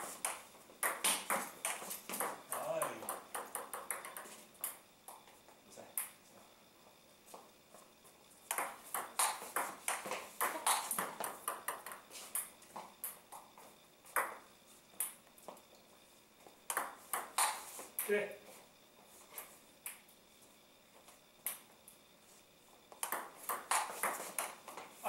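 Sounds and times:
table tennis ball clicking: 23.0s - 24.5s.

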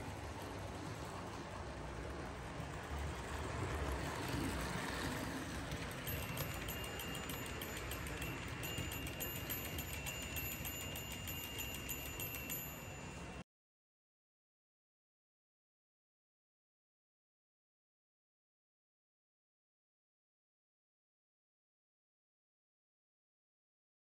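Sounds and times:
model train rumbling: 0.0s - 13.4s
wheels clicking over track: 0.0s - 13.4s
thin high ring: 6.1s - 13.4s.

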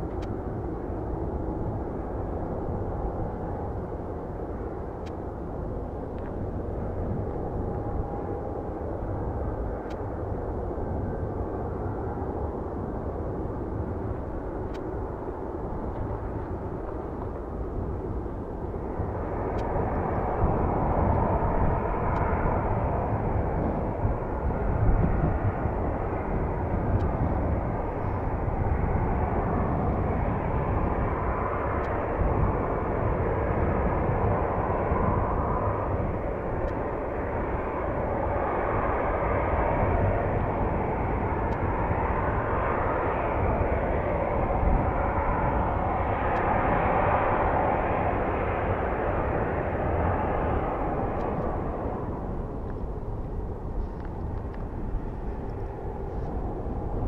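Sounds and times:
jet engines running on ground: 0.0s - 57.0s
turboprop airliner climbing: 0.0s - 57.0s
wind buffeting microphone: 0.0s - 57.0s.

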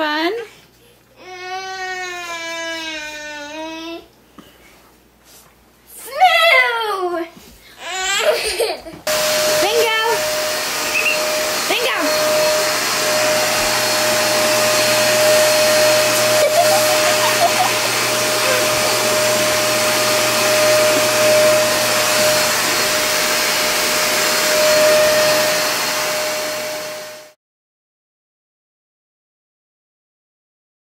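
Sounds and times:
appliance motor and fan running: 8.2s - 27.3s.

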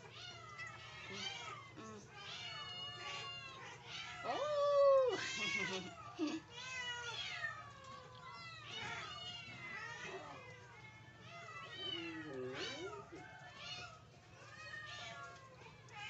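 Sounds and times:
cats meowing: 0.0s - 16.0s.

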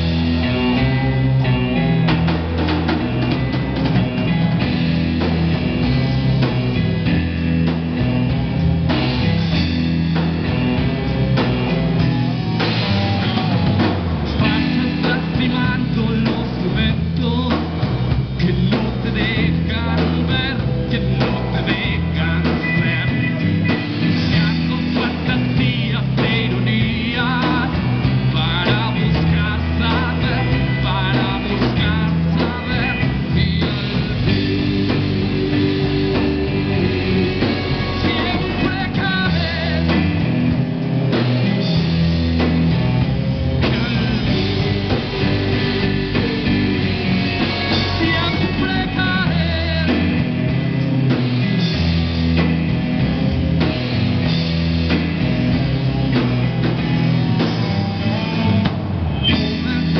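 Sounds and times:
drum kit: 0.0s - 59.9s
electric guitars: 0.0s - 59.9s
keyboard: 0.0s - 59.9s
person singing: 11.4s - 40.6s, 43.6s - 51.2s, 59.2s - 59.9s.

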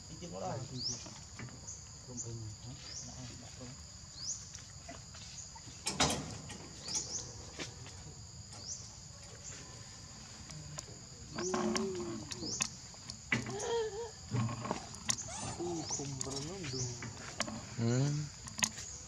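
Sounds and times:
insect hum: 0.0s - 19.0s
bird chirping: 0.7s - 4.6s, 6.5s - 7.4s, 11.3s - 19.0s.

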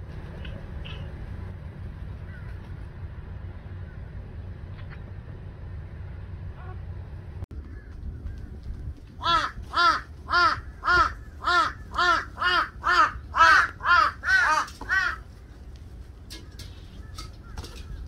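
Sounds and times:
crow cawing: 7.6s - 8.6s, 9.2s - 15.2s.

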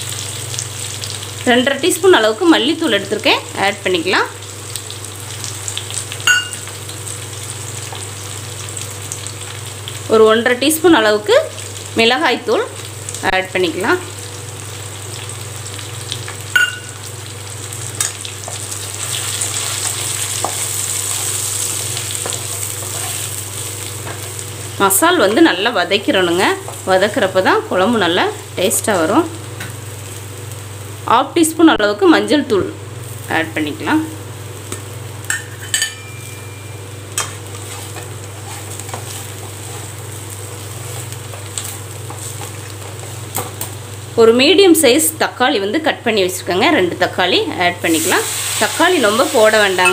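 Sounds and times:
vegetables sizzling in oil: 0.0s - 49.9s
spatula scraping a pan: 22.2s - 23.4s, 37.5s - 40.0s.

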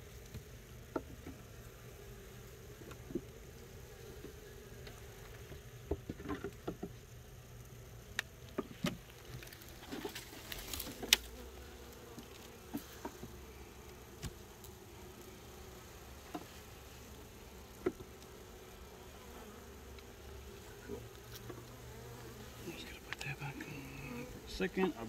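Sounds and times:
honeybees buzzing: 0.0s - 25.0s.

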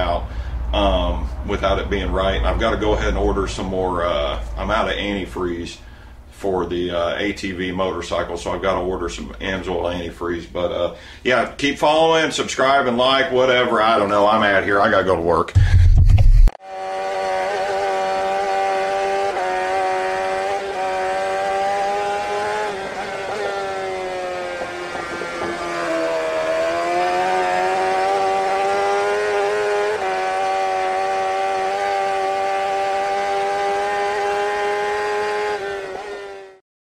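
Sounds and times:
engine revving high: 16.6s - 36.6s.

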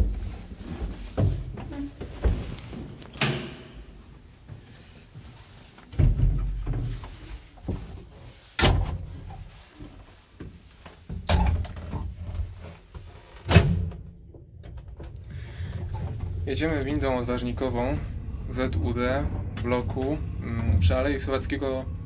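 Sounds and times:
low rumble: 15.2s - 22.0s.

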